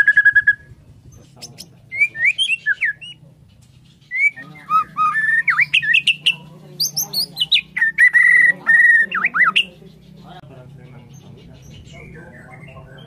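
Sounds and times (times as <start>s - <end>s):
bird singing whistled phrases: 0.0s - 0.7s, 1.4s - 3.2s, 4.1s - 9.7s.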